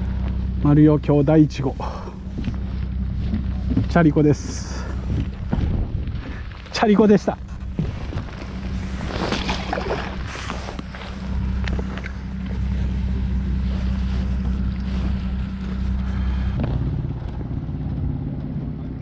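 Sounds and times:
low motor hum: 0.0 - 19.0
wind noise on microphone: 4.7 - 18.3.

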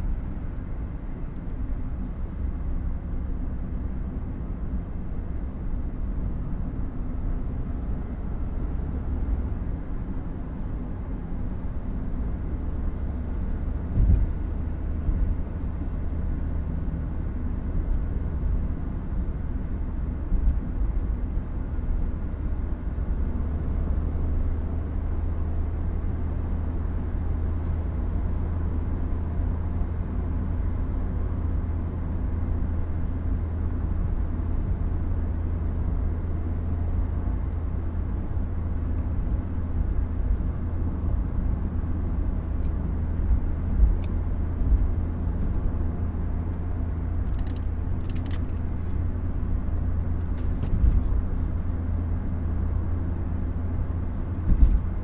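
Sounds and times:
car engine and tyre rumble: 0.0 - 55.0.

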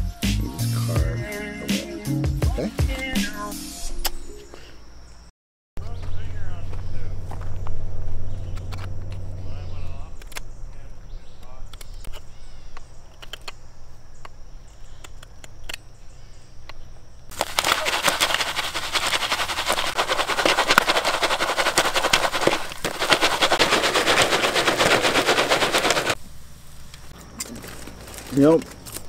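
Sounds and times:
popcorn popping: 17.3 - 26.2.

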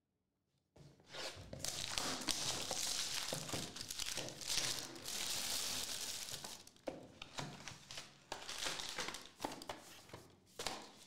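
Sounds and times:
foil card pack crinkling: 1.6 - 6.8, 8.0 - 9.4.

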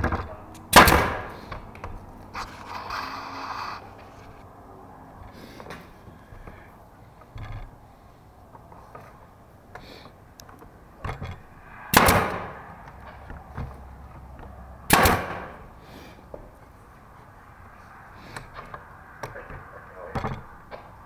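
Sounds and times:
nail gun firing: 0.0 - 1.5, 11.9 - 12.6, 14.9 - 15.6.

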